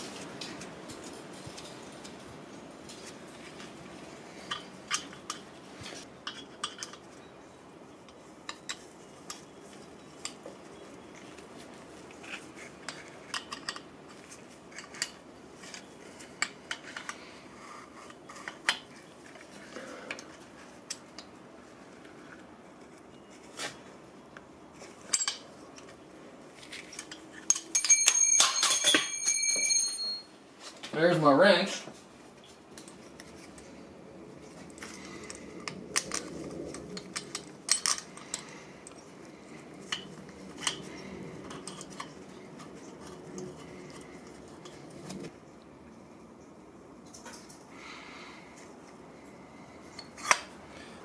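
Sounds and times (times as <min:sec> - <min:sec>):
wrench clinking against metal nut: 0:27.0 - 0:30.3.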